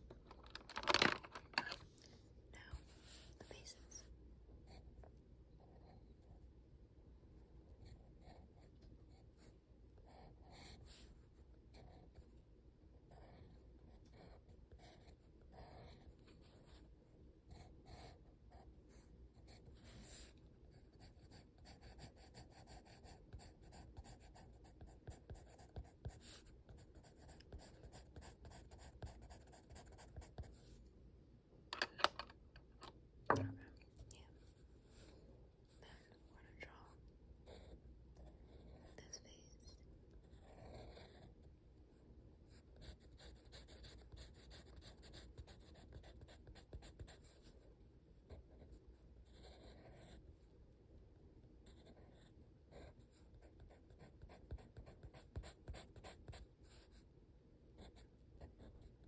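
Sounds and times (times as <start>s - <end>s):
pencil scratching on paper: 7.8s - 12.4s, 13.0s - 16.9s, 17.5s - 30.8s, 40.2s - 41.4s, 42.5s - 47.6s, 48.2s - 50.2s, 51.6s - 57.0s
pencil taps: 31.8s - 33.8s.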